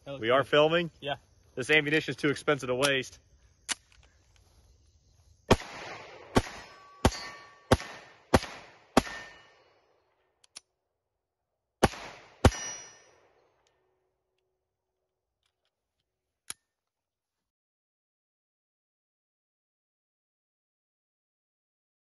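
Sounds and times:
pistol shots: 5.5 - 9.7, 11.8 - 13.4.

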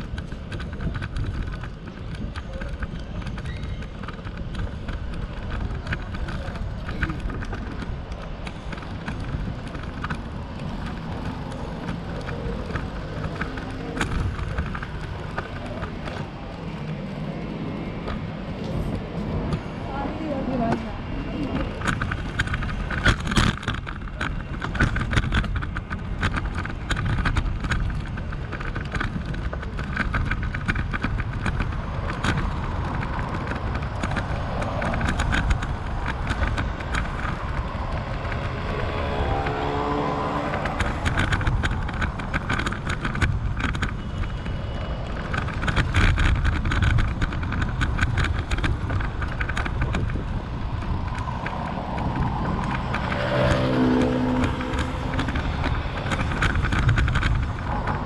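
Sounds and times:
road traffic passing: 0.0 - 58.0
wind rumble on microphone: 0.0 - 58.0
crackles: 20.4 - 58.0
vehicle engine note: 37.4 - 42.0, 51.4 - 56.4.

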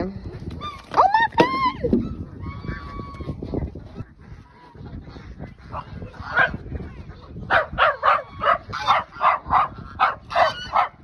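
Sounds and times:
small dog barking: 7.5 - 11.0.

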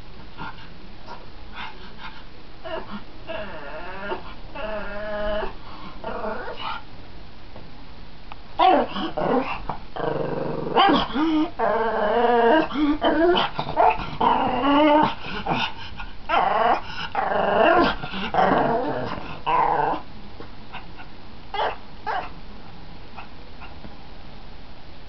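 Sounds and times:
dog growling and whining: 2.6 - 6.8, 8.6 - 20.1, 20.7 - 22.4.

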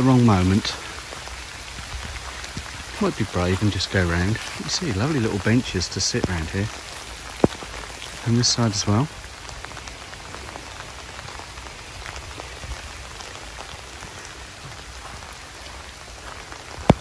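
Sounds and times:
rain pattering: 0.0 - 17.0
wind rumble on microphone: 1.3 - 3.0, 9.6 - 17.0.

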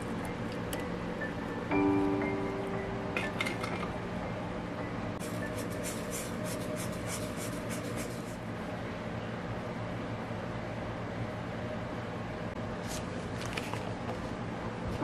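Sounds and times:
steady low hum: 0.0 - 13.3.

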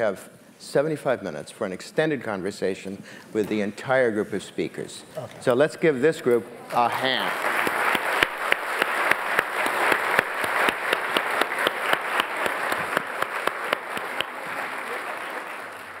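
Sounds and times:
audience applauding: 6.7 - 16.0.

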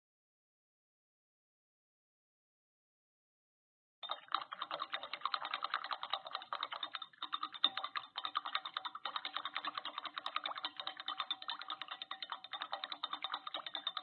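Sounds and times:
rapid dense clicking: 4.0 - 14.0.

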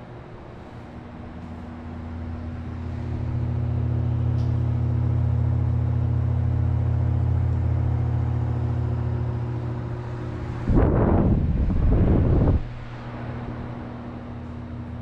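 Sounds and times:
table fan running: 0.0 - 15.0.

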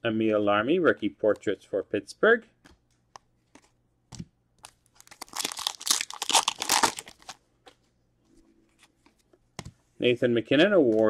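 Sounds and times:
foil wrapper crinkling: 4.6 - 7.4.

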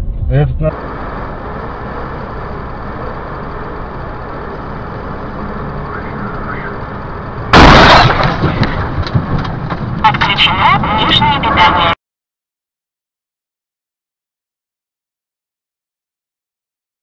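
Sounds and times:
road and engine noise: 0.0 - 12.0
loud car crash: 7.5 - 9.9.

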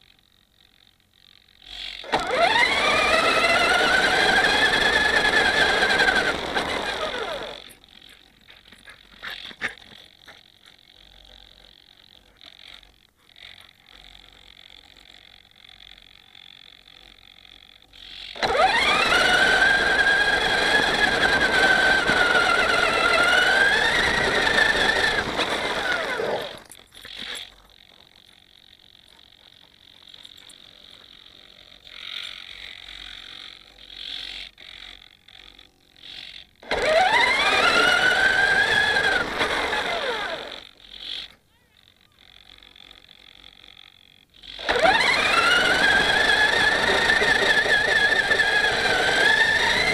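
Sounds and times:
small servos whirring: 0.0 - 49.9
electric motor whining: 1.6 - 8.3, 10.8 - 29.4, 35.5 - 41.3, 42.0 - 49.9.

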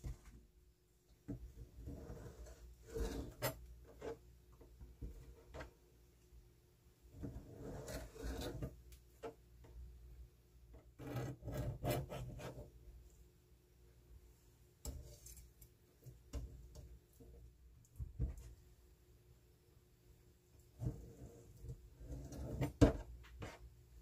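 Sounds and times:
rubbing and scraping: 1.5 - 4.3, 7.2 - 9.4, 10.9 - 12.8, 20.8 - 23.8.

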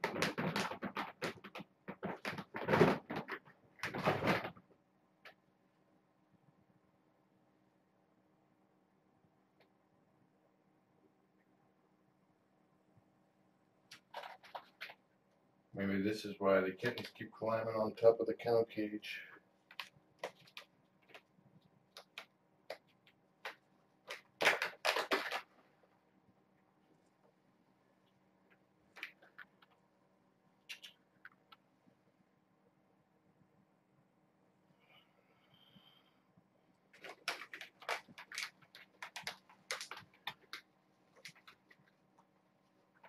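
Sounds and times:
plastic bag crinkling: 23.4 - 25.6, 36.9 - 41.9.

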